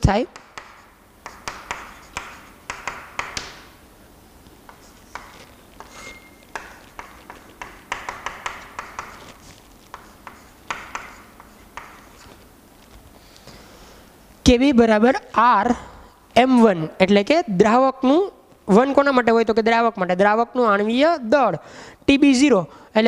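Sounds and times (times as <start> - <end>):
chalk tapping and scratching: 0.3 - 3.6, 4.6 - 13.1
chalk squeak: 5.8 - 6.4.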